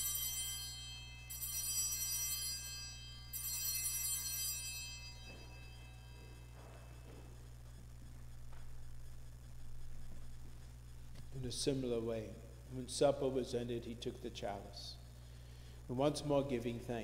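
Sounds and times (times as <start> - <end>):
altar bells ringing: 0.0 - 7.4.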